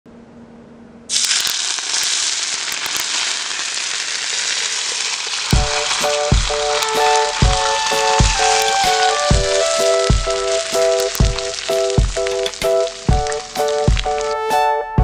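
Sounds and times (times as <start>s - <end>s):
hot oil sizzling and crackling: 1.1s - 14.5s
music with a steady beat: 5.6s - 15.0s.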